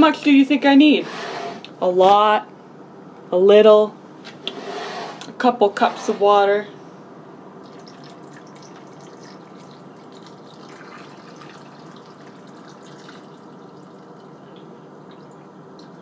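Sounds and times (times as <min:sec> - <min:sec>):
water pouring into a pot: 0:07.6 - 0:16.0.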